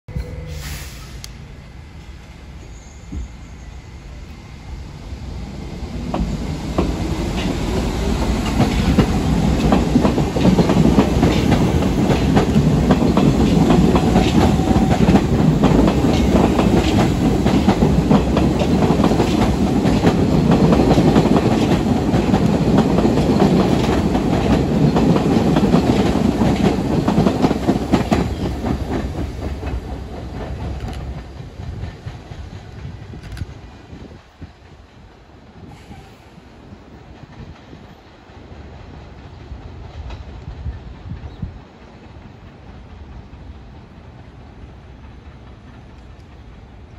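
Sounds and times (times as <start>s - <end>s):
subway trains passing: 0.1s - 46.9s
wheels clacking over rail joints: 6.0s - 33.4s.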